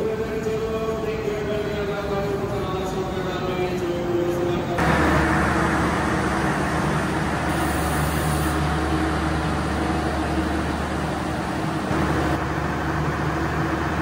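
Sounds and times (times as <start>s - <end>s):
tram humming and rumbling: 0.0s - 14.0s
steady low tones: 0.1s - 14.0s.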